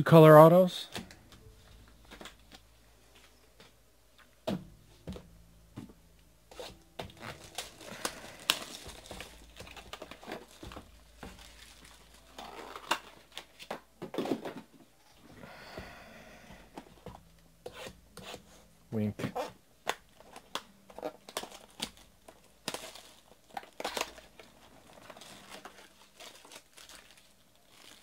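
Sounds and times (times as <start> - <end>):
paper and plastic wrap crinkling: 6.5 - 14.8, 19.4 - 28.0.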